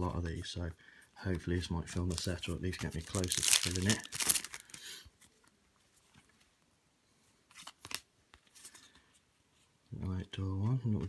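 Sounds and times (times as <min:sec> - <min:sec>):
cards clicking and rustling: 0:01.8 - 0:05.6, 0:07.5 - 0:09.0
foil packet crinkling: 0:01.9 - 0:05.0.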